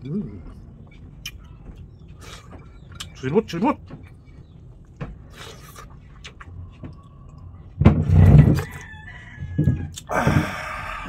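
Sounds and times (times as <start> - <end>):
rooster crowing: 8.4 - 11.0.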